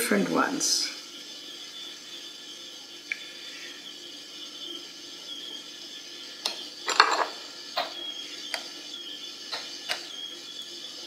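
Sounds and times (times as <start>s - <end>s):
clinks and knocks against glass jars: 6.9s - 7.4s.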